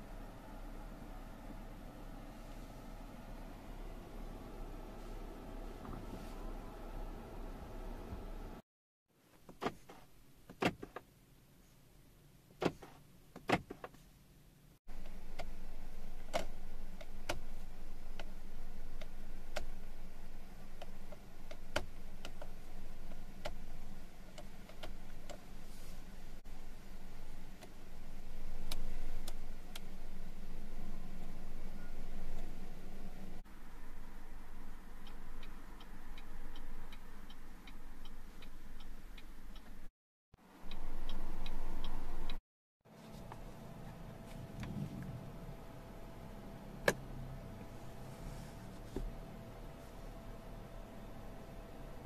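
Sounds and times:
faint low hum: 0.0s - 8.6s, 14.1s - 52.0s
turn signal stalk clicks: 14.9s - 15.6s, 28.4s - 30.0s, 34.9s - 39.9s
hazard flasher relay ticking: 34.4s - 39.9s, 40.6s - 42.4s.

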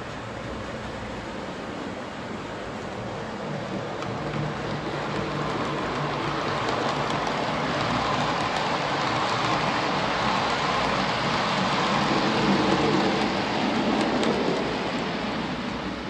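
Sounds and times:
model train wheels rattling on rails: 3.4s - 15.5s.

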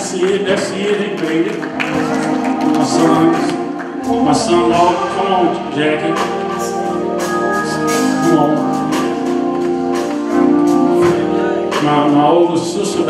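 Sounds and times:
drum beat: 0.0s - 13.0s
organ chords: 0.0s - 13.0s
person singing: 0.8s - 13.0s.

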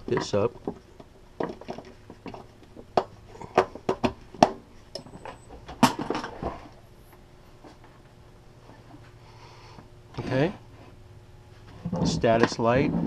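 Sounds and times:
metal box set down: 5.1s - 6.7s.

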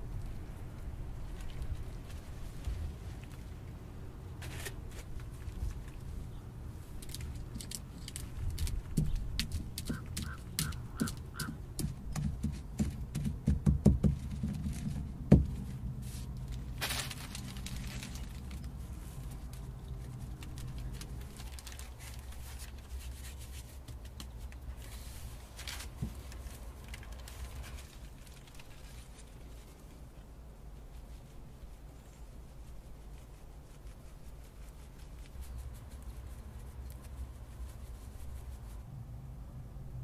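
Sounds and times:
rustle: 0.0s - 13.3s, 14.0s - 40.0s
scraping and light clicks: 6.9s - 11.6s, 14.3s - 30.2s
stone pestle pounding in mortar: 9.0s - 14.7s.

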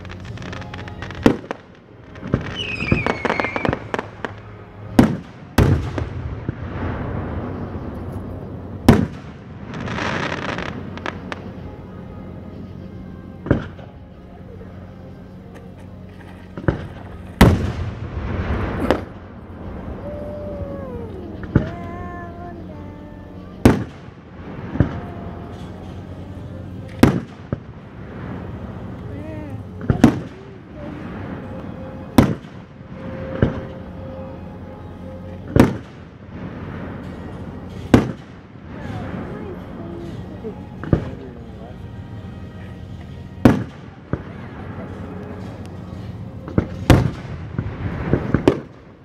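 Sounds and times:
firework hiss: 0.0s - 11.6s, 16.5s - 21.9s
fireworks bangs: 0.0s - 11.6s, 16.5s - 22.1s, 23.3s - 34.3s, 35.5s - 41.2s, 43.0s - 49.0s.

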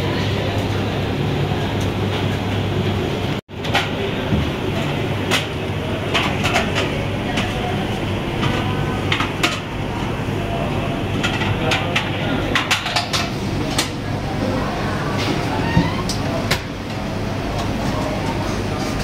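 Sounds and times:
restaurant hum: 0.0s - 19.0s
faint chatter: 3.6s - 19.0s
utensils and dishes clinking: 4.8s - 16.6s.

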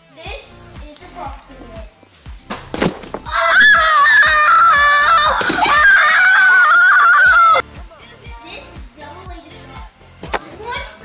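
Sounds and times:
child screaming: 3.3s - 7.6s.

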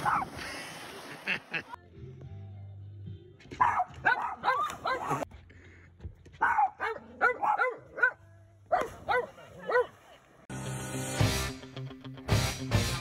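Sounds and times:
dog barking high yips: 3.6s - 5.2s
rock music: 10.5s - 13.0s.

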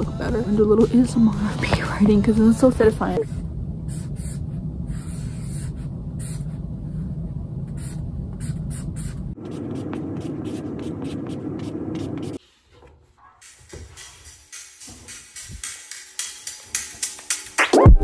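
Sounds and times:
marker scratching on poster board: 7.7s - 12.6s.

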